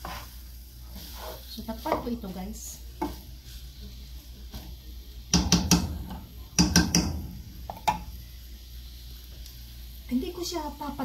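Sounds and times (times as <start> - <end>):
wooden spoon tapping metal pot: 5.3 - 8.1.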